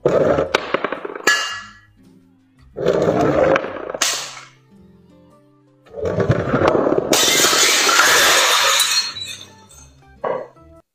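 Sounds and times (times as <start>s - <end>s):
background music: 0.0s - 10.9s
glass bottles shattering: 0.4s - 1.9s, 6.6s - 10.0s.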